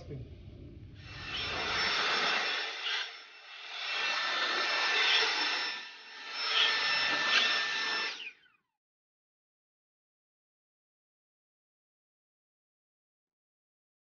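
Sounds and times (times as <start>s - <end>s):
motor winding down: 0.0s - 8.6s
leaf blower running: 1.0s - 8.3s.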